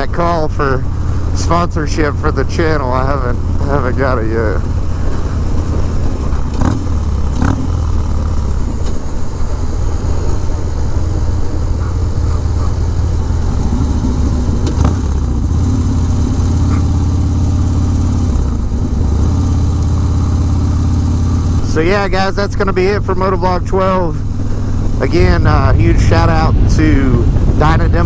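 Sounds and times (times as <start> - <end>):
motorcycle engine cruising: 0.0 - 28.0
wind rush on microphone: 3.2 - 17.1, 21.5 - 28.0.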